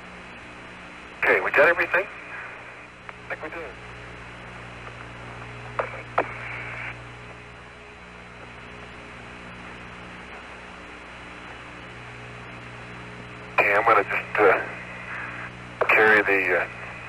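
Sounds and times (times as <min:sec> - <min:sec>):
radio channel hum and hiss: 0:00.0 - 0:17.0
burst of static: 0:00.3 - 0:07.6, 0:08.5 - 0:17.0
radio clicks: 0:01.8 - 0:03.6, 0:04.8 - 0:07.0, 0:13.6 - 0:16.9.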